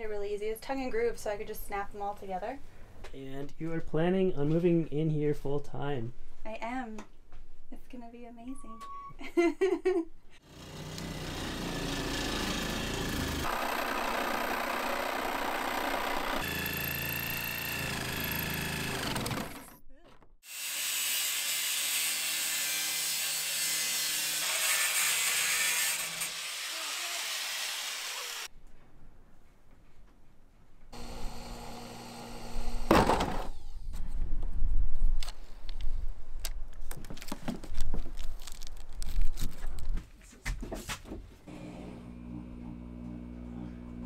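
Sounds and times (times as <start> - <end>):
jigsaw cutting sheet metal: 10.4 - 19.8, 20.4 - 28.5, 31.0 - 33.6.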